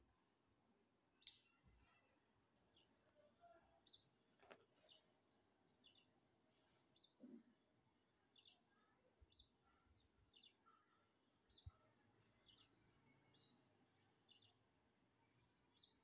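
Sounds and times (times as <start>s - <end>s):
bird chirping: 8.1s - 14.6s.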